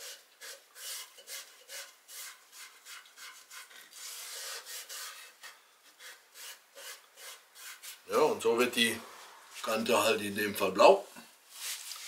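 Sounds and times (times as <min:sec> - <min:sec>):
cloth rag rubbing wood: 0:11.5 - 0:12.0.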